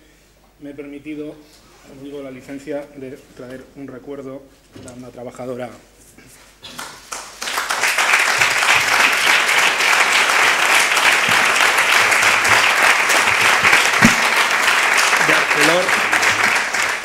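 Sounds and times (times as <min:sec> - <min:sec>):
people applauding: 0:06.6 - 0:17.0.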